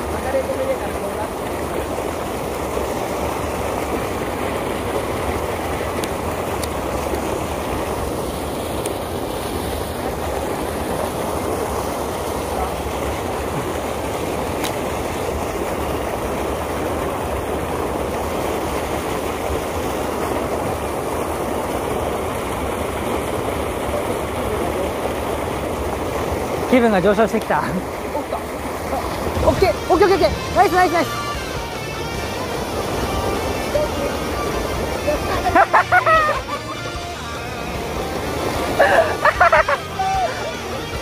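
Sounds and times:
river water rushing: 0.0 - 41.0.

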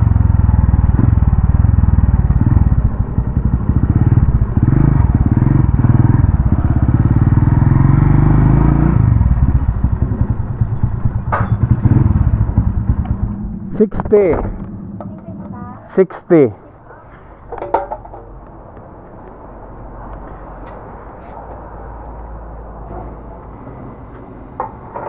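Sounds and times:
small motorcycle engine running: 0.0 - 13.7.

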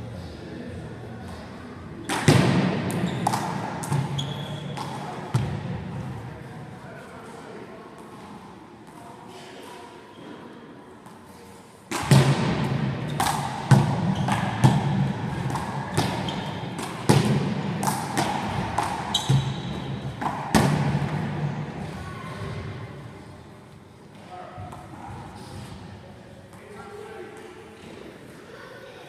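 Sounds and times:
trainers squeaking on court: 3.0 - 4.9, 19.1 - 19.8
handball smacking wall and floor: 11.9 - 21.2.

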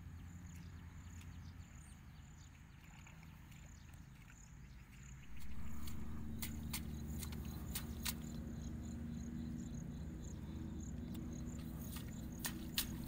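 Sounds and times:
insects chirping: 3.6 - 13.0
steady low hum: 4.2 - 13.0.

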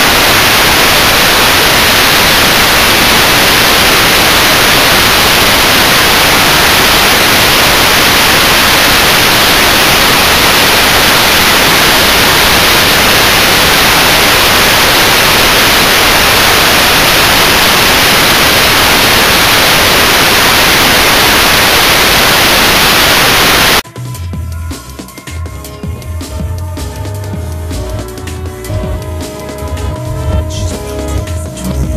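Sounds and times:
television static hiss: 0.0 - 23.8.

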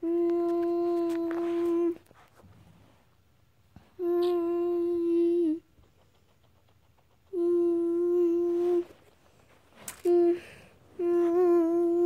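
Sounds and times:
person humming long notes: 7.4 - 8.8, 11.0 - 12.0.

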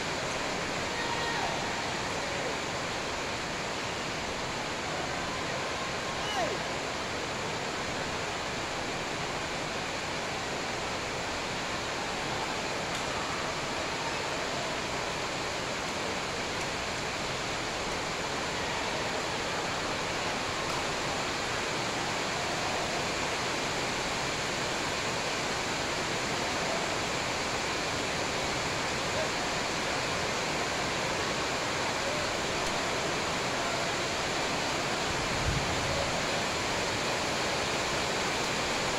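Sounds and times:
steady rushing hall noise: 0.0 - 38.9
faint voices: 0.3 - 8.2.

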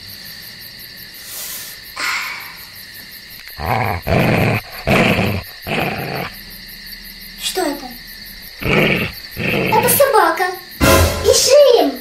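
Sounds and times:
dog growling: 3.4 - 6.6, 8.5 - 10.2.

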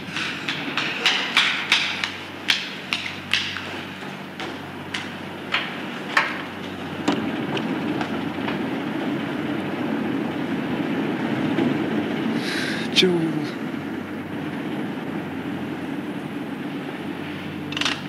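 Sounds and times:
hard-soled footsteps on hard floor: 0.0 - 8.6.

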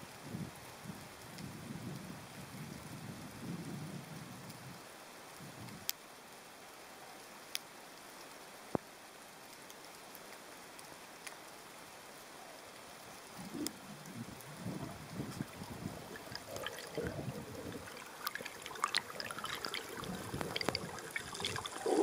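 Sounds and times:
low watery rumble: 13.1 - 22.0
underwater hiss: 13.3 - 22.0.

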